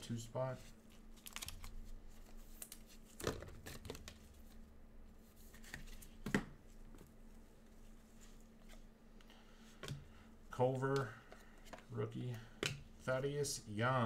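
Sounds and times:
cards rustling and clicking: 0.9s - 4.7s, 5.4s - 7.2s.

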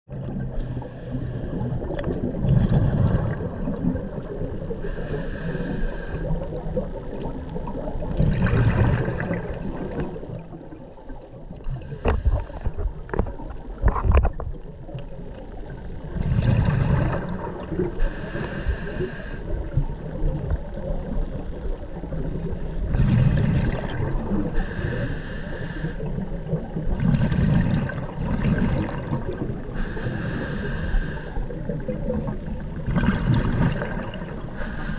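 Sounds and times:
regulator inhale hiss: 0.5s - 2.0s, 4.8s - 7.1s, 11.6s - 13.0s, 17.9s - 19.7s, 24.5s - 26.2s, 29.6s - 31.8s, 34.2s - 34.9s
exhaust bubbles rumbling: 1.9s - 4.8s, 6.5s - 10.8s, 14.5s - 18.0s, 19.6s - 24.6s, 26.2s - 29.7s, 31.7s - 34.5s.

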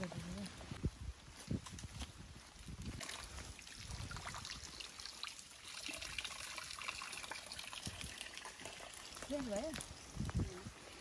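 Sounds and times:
water trickling: 2.8s - 10.6s.

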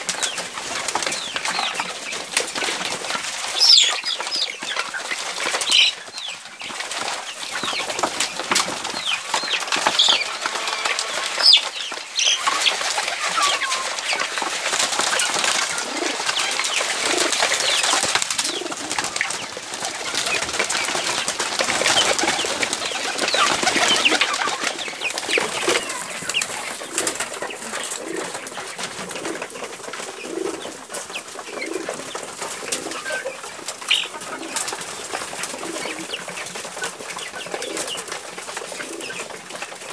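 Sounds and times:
chicks chirping: 0.0s - 39.9s
wing flaps: 7.0s - 33.0s
pigeons cooing: 7.3s - 39.9s.

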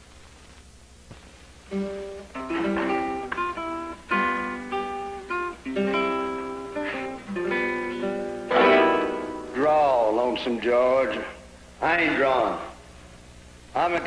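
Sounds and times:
acoustic guitar picking: 1.7s - 10.2s.

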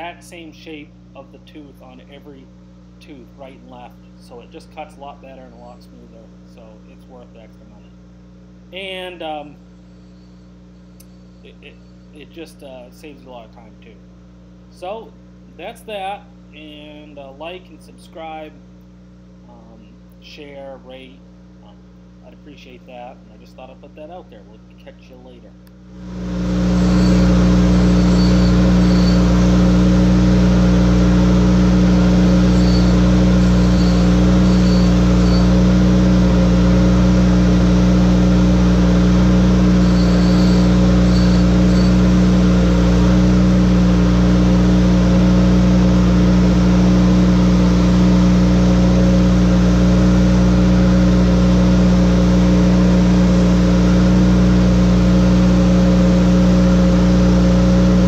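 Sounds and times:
grinder motor droning: 25.8s - 58.0s.

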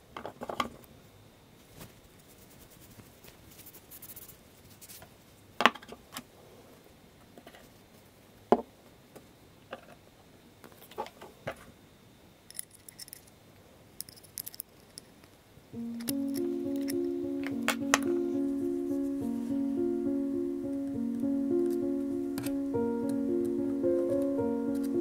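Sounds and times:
small metal parts clinking: 12.5s - 13.4s, 14.0s - 15.2s.

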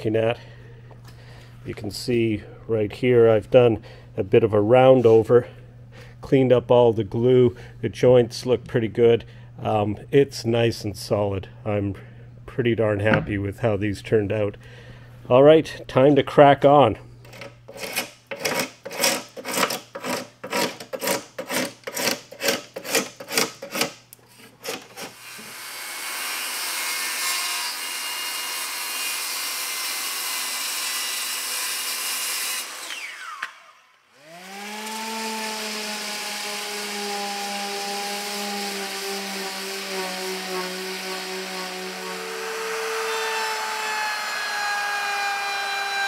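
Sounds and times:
hand tool working wood: 17.2s - 25.6s, 34.5s - 46.0s
circular saw cutting plywood: 17.3s - 46.0s
orbital sander humming: 34.2s - 46.0s.

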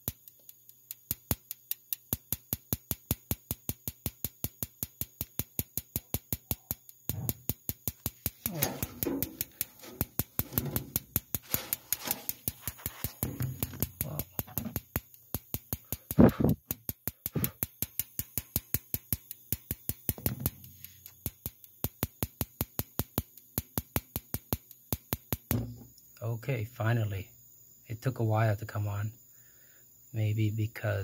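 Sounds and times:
spark igniter ticking: 0.0s - 25.5s
thump: 8.5s - 12.3s, 13.1s - 14.8s, 20.2s - 20.7s, 25.5s - 25.9s.

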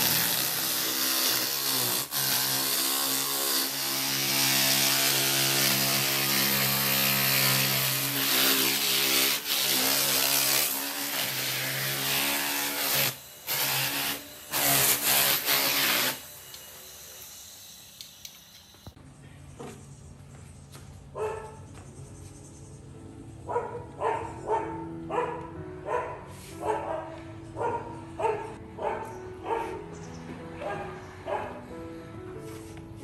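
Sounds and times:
power tool grinding wood: 0.0s - 18.8s.

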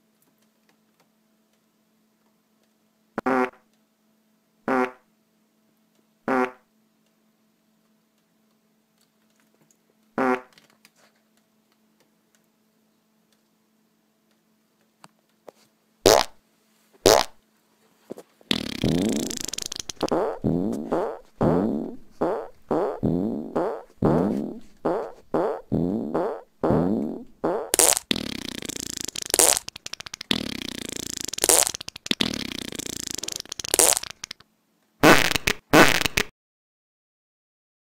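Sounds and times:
comedy fart sounds: 3.2s - 3.7s, 4.7s - 5.1s, 6.3s - 6.7s, 10.2s - 10.6s, 16.1s - 16.4s, 17.0s - 17.4s, 18.5s - 34.4s, 35.0s - 36.3s.

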